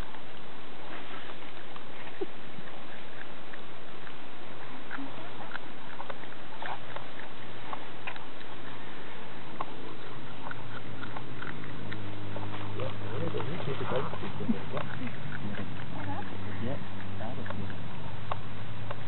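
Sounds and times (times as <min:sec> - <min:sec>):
animals gnawing crunching: 0:00.0 - 0:19.0
steady noisy background: 0:00.0 - 0:19.0.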